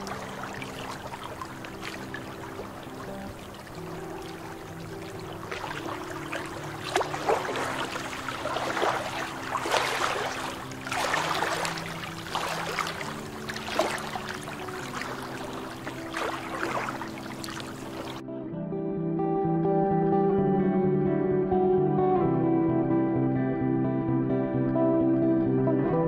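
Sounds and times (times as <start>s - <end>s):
waves lapping against rocks: 0.0s - 18.2s
soft music with held notes: 0.0s - 26.0s.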